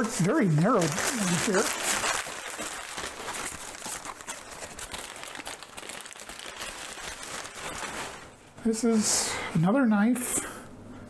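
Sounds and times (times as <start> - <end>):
paper crinkling and rustling: 0.0 - 8.4.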